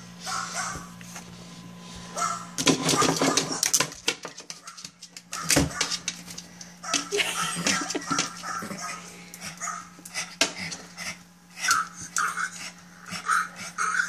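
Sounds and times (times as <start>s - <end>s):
steady low hum: 0.0s - 14.0s
dog paws scratching a screen: 2.2s - 11.0s.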